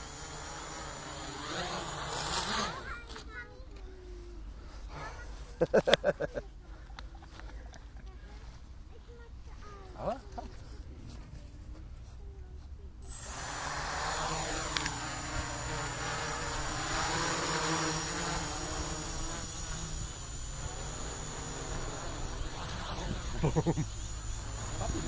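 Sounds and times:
drone motors whining: 0.0s - 3.3s, 13.0s - 25.0s.

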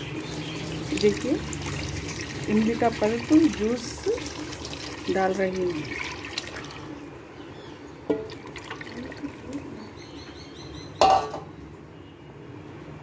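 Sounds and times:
liquid splashing and trickling: 0.0s - 7.3s, 8.1s - 10.2s
sharp metal knock with ring: 11.0s - 11.5s.

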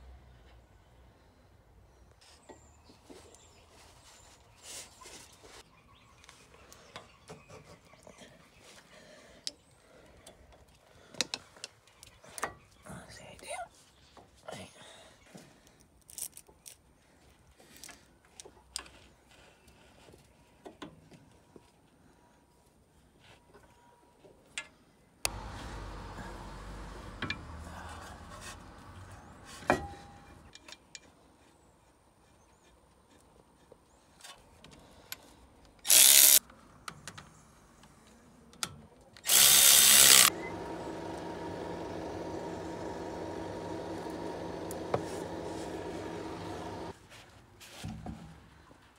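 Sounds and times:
cordless power tool running: 25.3s - 28.3s, 35.9s - 36.4s, 39.2s - 46.9s.

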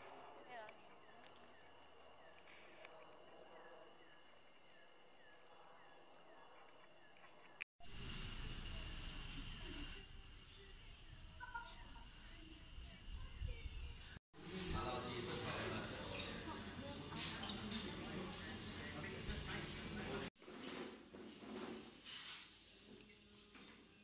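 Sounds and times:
insects trilling: 0.4s - 14.2s.

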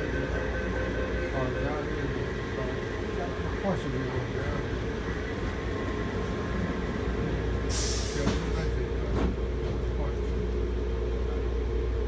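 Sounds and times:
train low hum: 0.0s - 12.0s
short burst of hiss: 7.7s - 8.4s.

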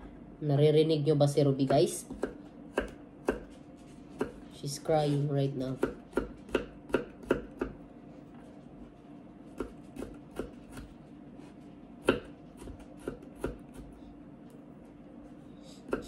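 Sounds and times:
knife chopping on cutting board: 1.6s - 4.4s, 5.8s - 7.8s, 9.5s - 11.0s, 12.0s - 14.0s.

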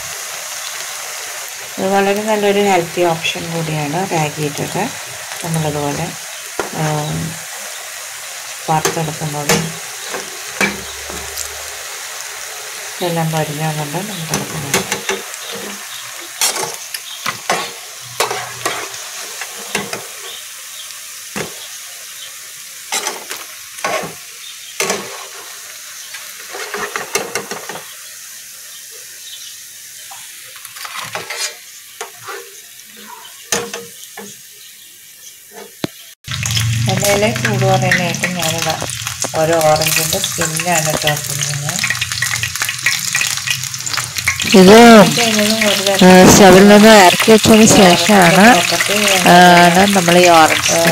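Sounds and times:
oil sizzling: 0.0s - 50.9s
spatula scraping pan: 14.2s - 20.4s, 31.0s - 33.4s
wavering pitched sound: 36.3s - 45.7s.

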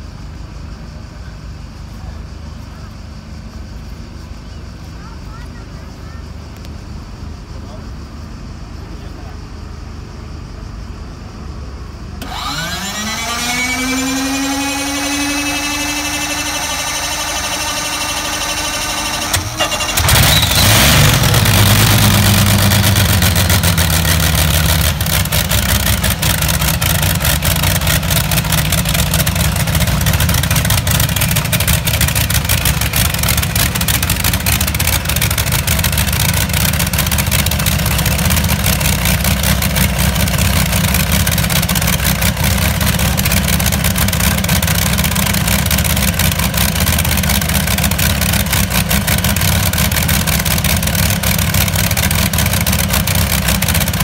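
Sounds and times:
starter motor whine: 12.2s - 54.0s
tractor engine running loud: 12.2s - 54.0s.

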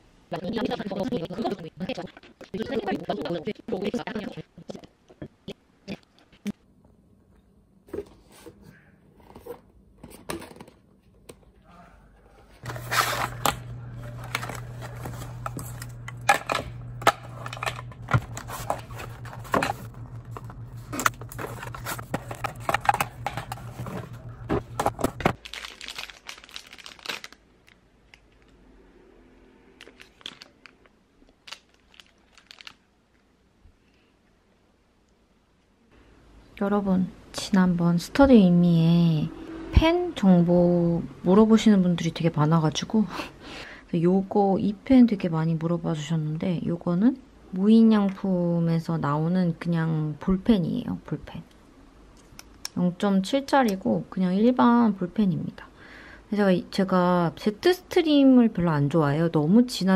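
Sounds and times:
steady low hum: 11.6s - 25.4s
cardboard tearing and crinkling: 12.6s - 15.8s, 17.1s - 27.4s, 31.5s - 32.7s
plastic capsules clattering: 12.6s - 27.4s.

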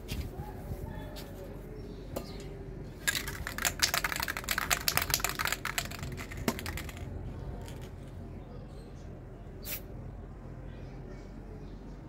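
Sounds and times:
spray can ball rattling: 3.0s - 8.1s.

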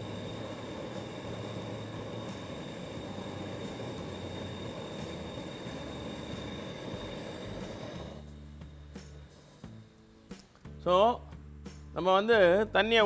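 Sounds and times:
syrup boiling and bubbling: 0.0s - 9.8s.

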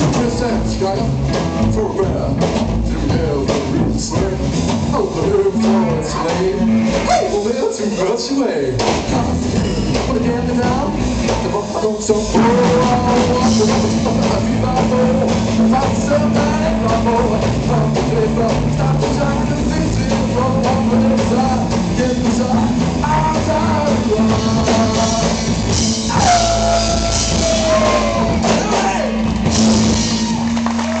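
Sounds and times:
electric guitar: 0.0s - 7.6s
person singing: 0.0s - 8.2s, 8.8s - 30.2s
upright double bass: 0.0s - 8.2s, 8.8s - 31.0s
drum kit: 0.0s - 31.0s.

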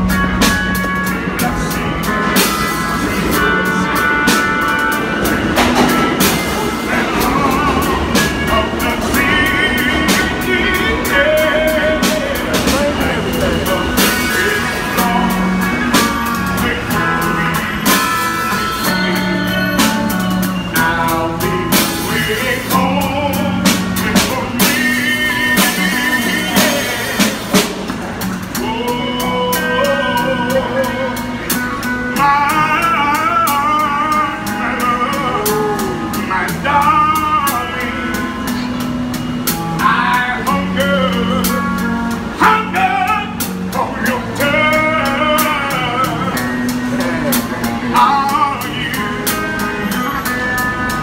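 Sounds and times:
man singing soul ballad: 0.0s - 27.6s, 28.5s - 38.9s, 39.6s - 51.0s
guitar: 0.0s - 51.0s.

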